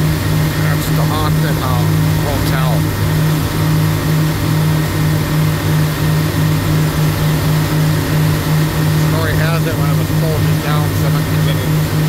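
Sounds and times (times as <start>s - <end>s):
boat engine droning: 0.0s - 12.0s.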